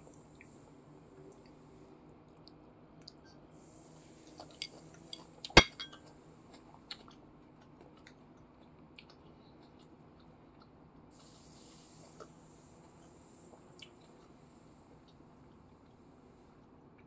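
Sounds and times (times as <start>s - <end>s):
ceramic dishes clinking: 5.6s - 6.0s
water spray hiss: 11.2s - 14.8s.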